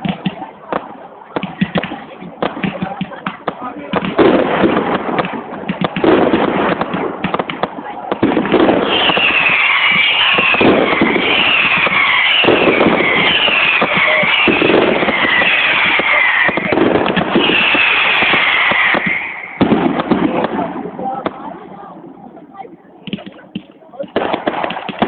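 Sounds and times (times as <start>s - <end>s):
fireworks crackling and popping: 0.0s - 25.0s
falling firework whistles: 8.5s - 19.8s.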